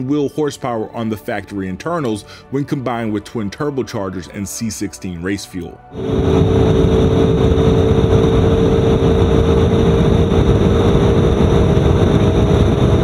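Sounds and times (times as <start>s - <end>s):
wind roar: 5.9s - 13.0s
car engine droning: 6.0s - 13.0s
road roar: 6.0s - 13.0s.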